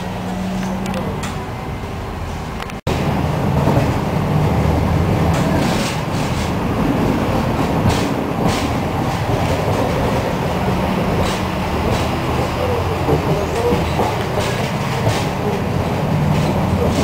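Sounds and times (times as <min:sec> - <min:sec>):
tram wheels rumbling on rails: 0:00.0 - 0:17.0
wheels clacking over track: 0:05.2 - 0:17.0.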